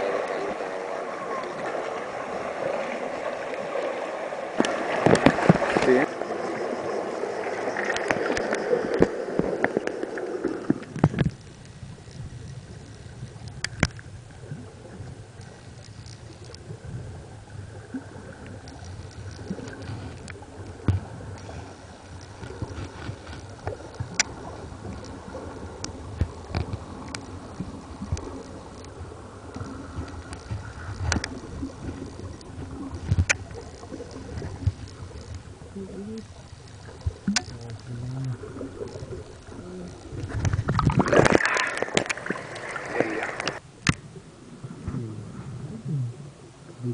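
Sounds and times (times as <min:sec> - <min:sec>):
underwater churning water: 0:00.0 - 0:46.9
sharp clicks underwater: 0:04.5 - 0:06.1, 0:07.7 - 0:17.0, 0:17.8 - 0:44.2.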